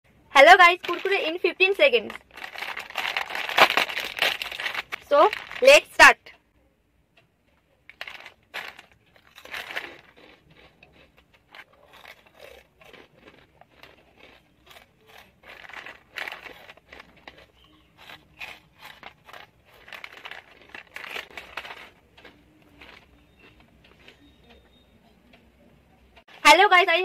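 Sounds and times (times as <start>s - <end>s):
foil snack packet crackling: 0.4s - 6.0s, 7.8s - 23.7s
crunching snacks being eaten: 2.1s - 5.6s, 7.8s - 24.6s.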